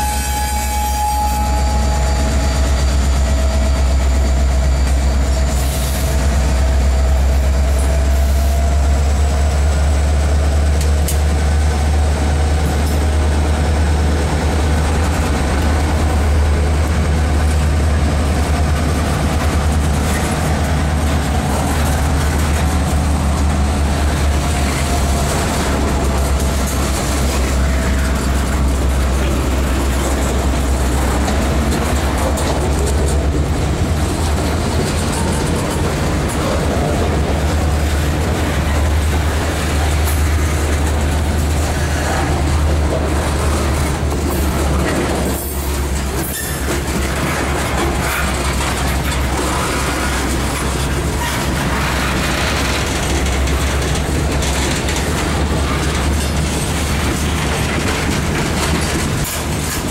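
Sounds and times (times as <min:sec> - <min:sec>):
wavering wheel squeal: 0:00.0 - 0:08.6
freight train rumbling past: 0:00.0 - 0:59.9.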